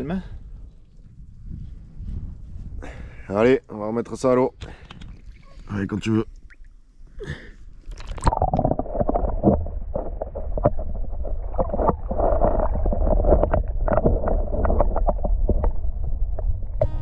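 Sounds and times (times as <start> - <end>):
wind rumble on microphone: 0.0 - 5.7, 8.4 - 17.0
water splashing and sloshing: 4.8 - 6.8, 7.7 - 16.8.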